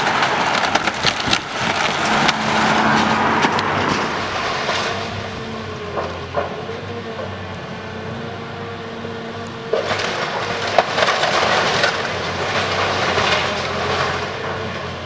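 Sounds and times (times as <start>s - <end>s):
sharp wood crack: 0.0s - 5.1s, 9.7s - 14.6s
wood cracking and splintering: 0.0s - 7.5s, 9.6s - 15.0s
excavator engine running: 0.0s - 15.0s.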